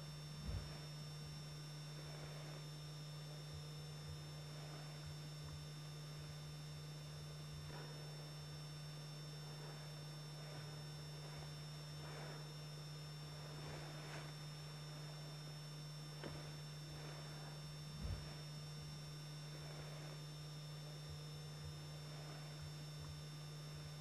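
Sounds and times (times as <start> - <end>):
background hiss: 0.0 - 2.9, 6.1 - 20.9
low electrical hum: 0.0 - 24.0
faint soft swishes: 0.4 - 1.0, 7.6 - 8.4, 9.4 - 12.6, 13.3 - 20.3, 21.6 - 22.7.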